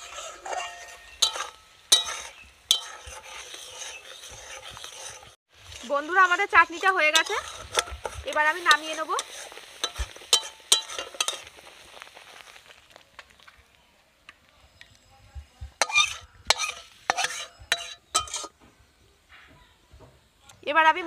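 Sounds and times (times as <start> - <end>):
metal spatula scraping a pan: 0.0 - 11.8, 15.8 - 18.6
light sizzle: 0.0 - 21.0.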